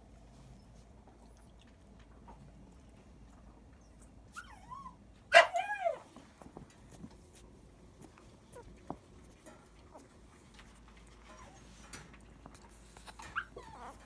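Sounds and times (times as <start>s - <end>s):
puppy whimpering and squealing: 3.8s - 6.1s, 13.2s - 14.0s.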